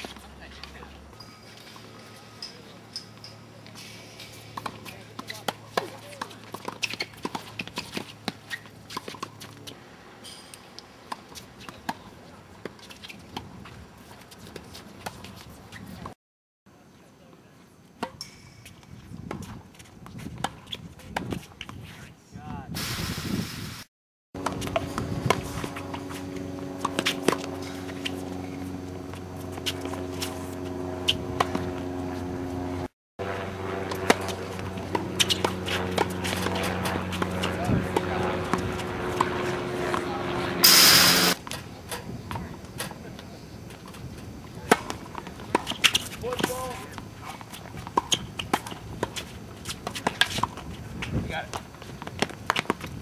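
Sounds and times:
tennis balls bouncing on court: 4.3 - 9.7, 33.9 - 40.2, 43.8 - 53.0
steady low hum: 24.4 - 45.5
tennis balls struck by rackets: 33.9 - 43.0, 44.6 - 53.0.

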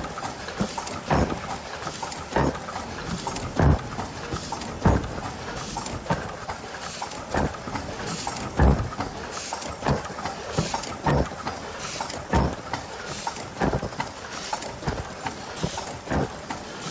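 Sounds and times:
machine mechanism clacking: 0.0 - 16.9.

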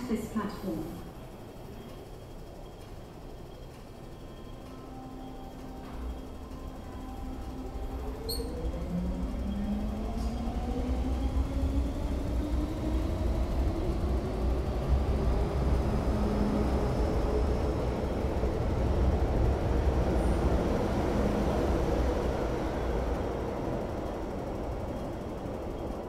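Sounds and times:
wheels rumbling on rails: 0.0 - 26.0
electric train motors whining: 0.5 - 26.0.

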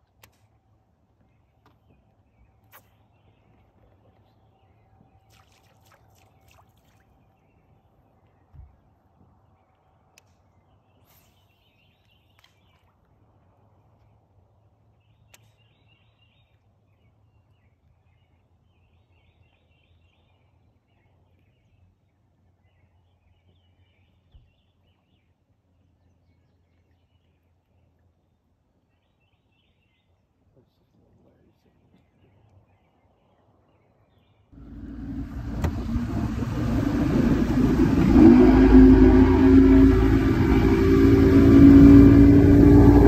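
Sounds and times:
faint low hum: 34.6 - 43.0.

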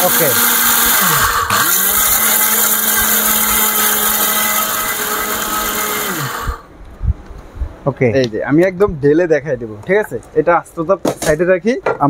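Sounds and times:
mixer grinder motor whirring: 0.0 - 6.7.

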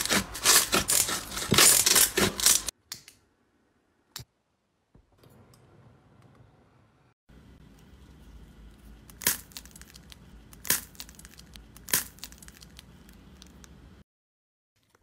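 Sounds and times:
shell pieces crackling: 9.1 - 13.5.

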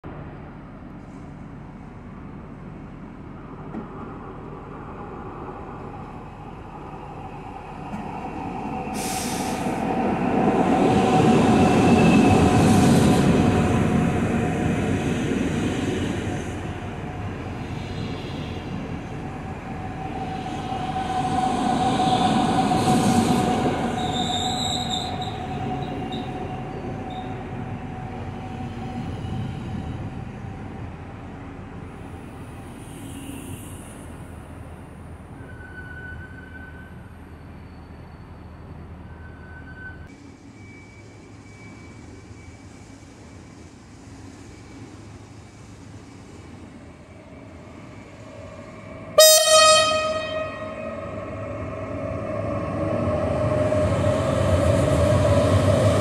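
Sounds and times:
steady squealing tone: 19.7 - 27.5
train wheels rumbling: 42.0 - 56.0.

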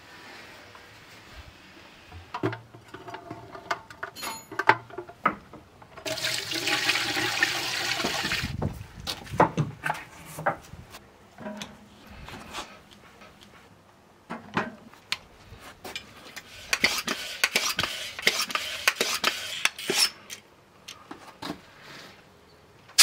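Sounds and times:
water pouring and splashing: 6.0 - 8.6.

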